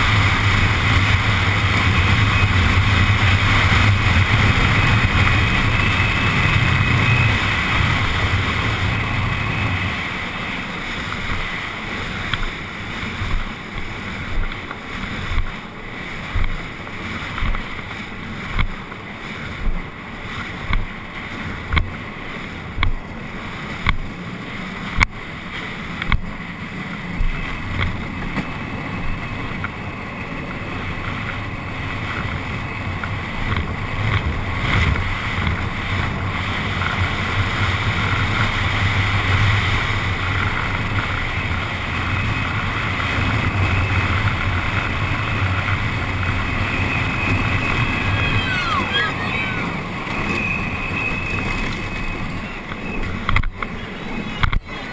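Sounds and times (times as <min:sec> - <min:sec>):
tyres rolling on asphalt: 0:00.0 - 0:54.9
wind rushing over microphone: 0:00.0 - 0:54.9.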